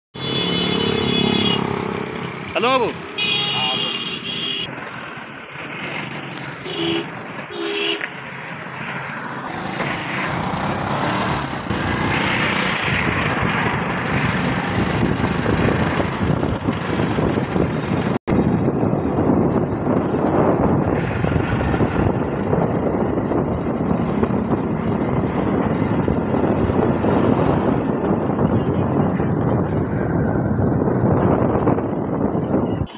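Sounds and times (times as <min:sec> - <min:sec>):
vehicle engine: 0:00.2 - 0:32.9
wind noise: 0:09.5 - 0:32.9.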